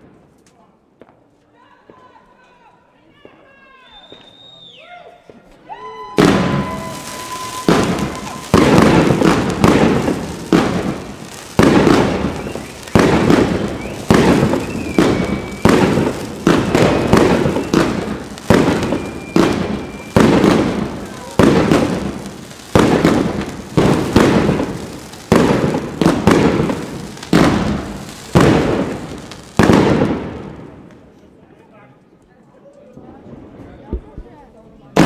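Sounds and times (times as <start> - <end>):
fireworks bangs and crackle: 0.0 - 1.3, 3.2 - 4.6, 5.2 - 31.5, 32.9 - 35.0
faint high whistle: 3.7 - 8.6, 12.2 - 18.0, 18.7 - 20.4.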